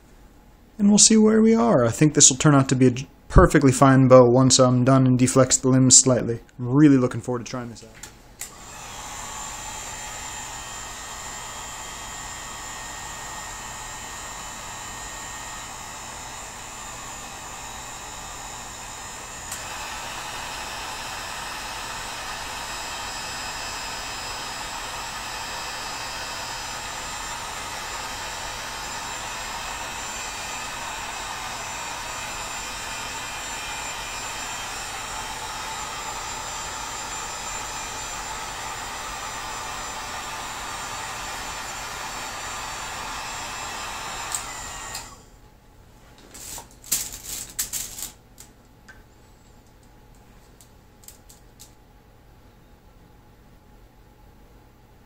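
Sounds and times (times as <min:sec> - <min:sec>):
heat gun blowing hot air: 0:08.4 - 0:45.2, 0:46.4 - 0:48.2.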